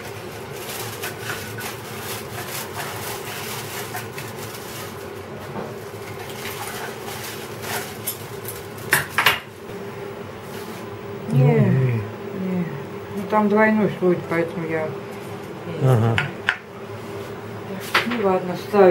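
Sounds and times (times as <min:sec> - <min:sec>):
aluminium foil crinkling: 0:00.0 - 0:09.6.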